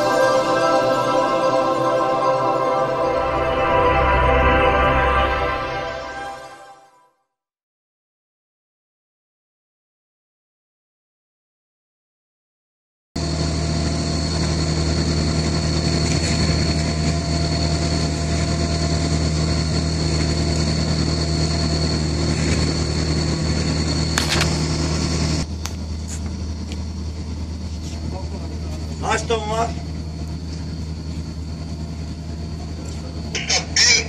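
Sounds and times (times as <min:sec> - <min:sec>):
diesel machinery hum and whine: 0:13.2 - 0:34.0.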